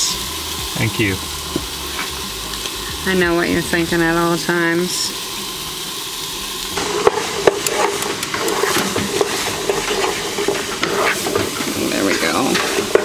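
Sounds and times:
vegetables sizzling in oil: 0.0 - 13.0
utensil knocking and scraping pan: 6.8 - 13.0.

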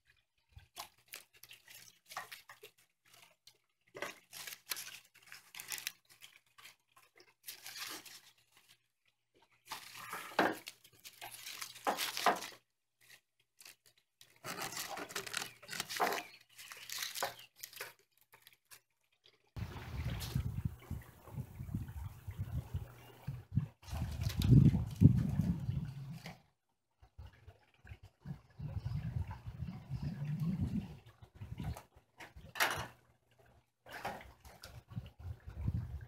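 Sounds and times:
dry reeds rustling and crackling: 0.6 - 8.8, 9.6 - 18.9, 19.6 - 26.3.

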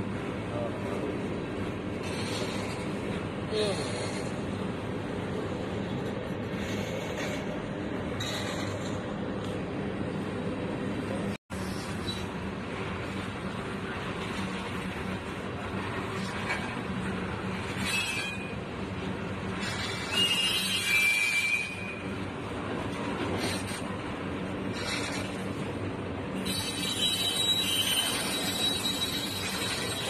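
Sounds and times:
freight train cars rolling: 0.0 - 30.0
wheels squealing: 17.7 - 18.6, 19.6 - 22.2, 26.3 - 30.0.

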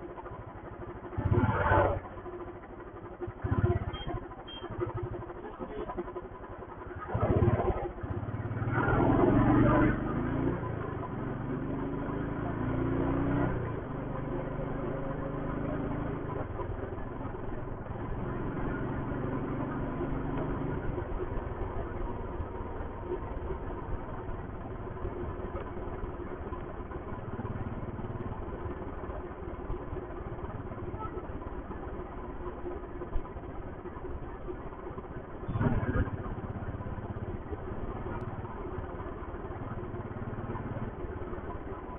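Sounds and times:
motorcycle engine and exhaust: 0.0 - 41.9
road noise: 0.0 - 41.9.

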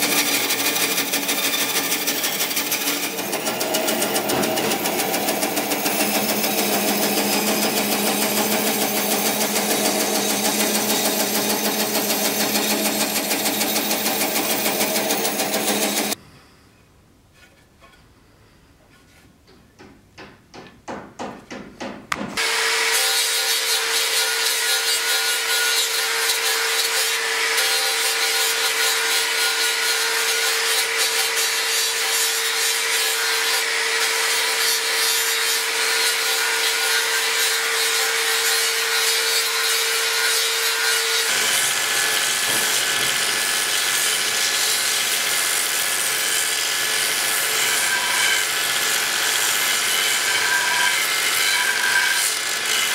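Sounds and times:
angle grinder grinding wood: 0.0 - 16.2
belt sander sanding wood: 0.0 - 16.2.

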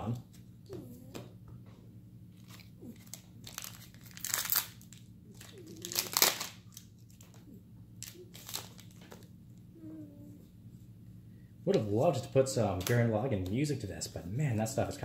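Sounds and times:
foil wrapper crinkling and tearing: 2.3 - 7.4, 8.0 - 9.3.

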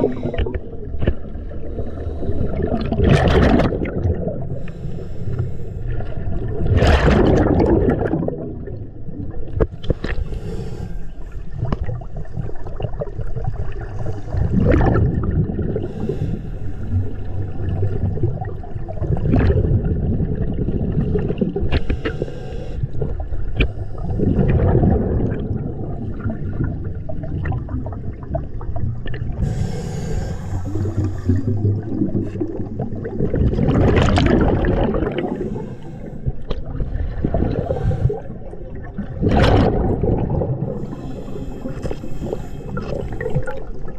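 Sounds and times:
exhaled bubbles gushing underwater: 0.0 - 4.8, 5.9 - 10.3, 11.4 - 22.2, 22.9 - 43.9
regulator inhalation hiss: 29.4 - 31.5.

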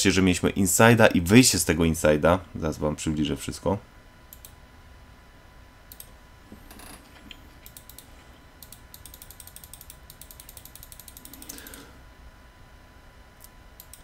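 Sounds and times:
mouse scroll wheel clicking: 7.7 - 11.8.

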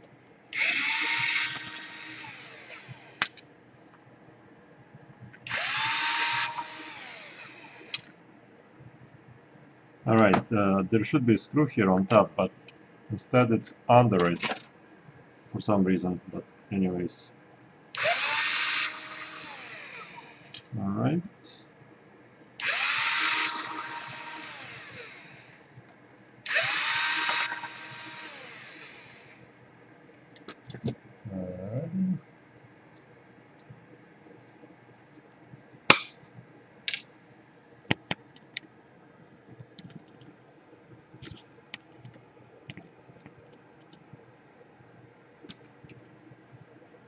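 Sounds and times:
cordless drill winding: 0.6 - 3.4, 5.5 - 8.1, 18.0 - 20.6, 22.6 - 25.6, 26.5 - 29.4
small clicks and taps: 39.5 - 40.3.

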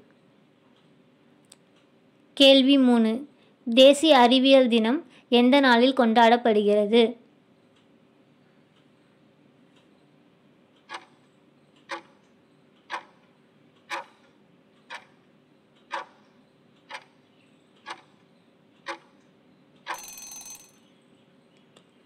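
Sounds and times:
clock-like ticking: 10.7 - 20.7.

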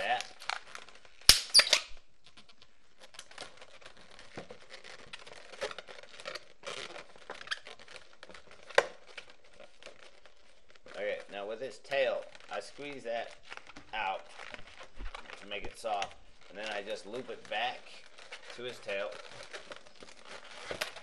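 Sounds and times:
balloons rubbing and squeaking: 0.0 - 21.0
balloon popping: 1.2 - 2.0
balloon snapping: 1.2 - 2.0.

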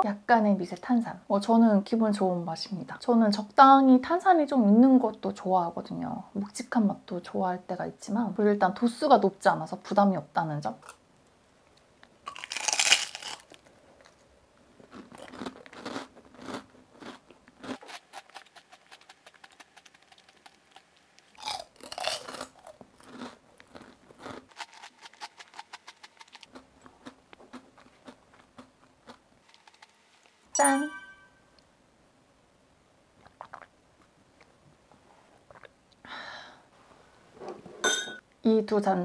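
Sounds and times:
crunching and chewing food: 12.0 - 30.4.

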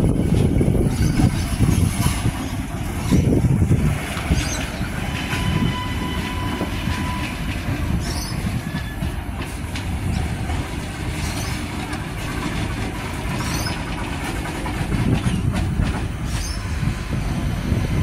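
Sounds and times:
diesel railcar rumbling: 0.0 - 18.0
wheels clicking over rails: 6.2 - 16.4.

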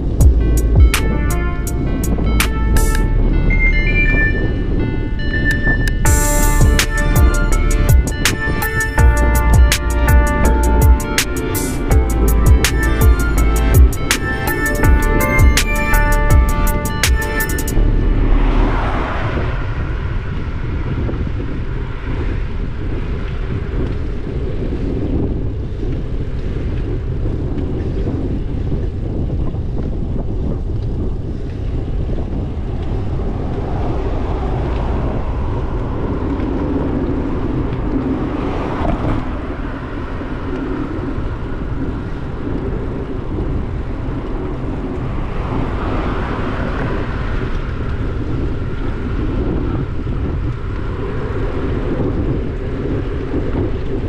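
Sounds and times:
cars passing: 0.0 - 23.7, 32.2 - 42.4, 43.6 - 49.2
wind rumble on microphone: 0.0 - 54.0.

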